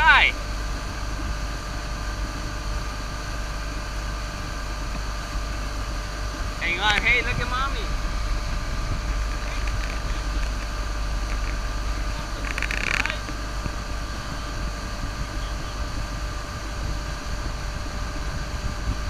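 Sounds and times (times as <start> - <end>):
motorboat engine rumbling: 0.0 - 19.0
rush of boat wake: 0.0 - 19.0.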